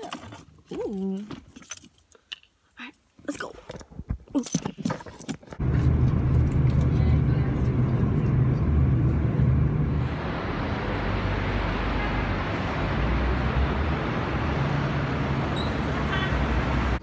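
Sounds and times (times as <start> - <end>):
low engine hum: 5.6 - 17.0
passing road vehicles: 5.6 - 17.0.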